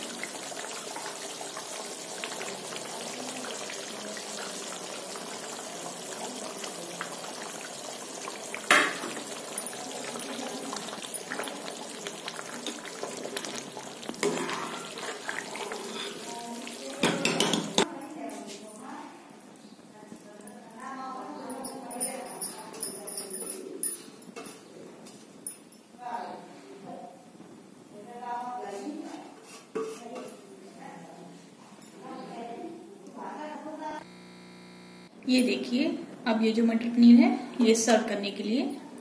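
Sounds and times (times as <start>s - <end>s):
gravy simmering and bubbling: 0.0s - 17.9s
ladle stirring and scraping: 7.0s - 17.9s, 29.1s - 30.4s.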